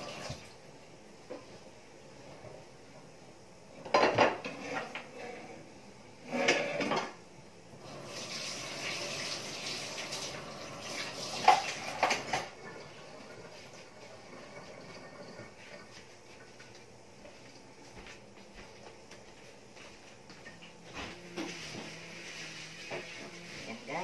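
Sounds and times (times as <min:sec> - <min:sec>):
dishes and cutlery clattering: 0:03.8 - 0:05.2, 0:06.4 - 0:07.2, 0:11.3 - 0:12.8.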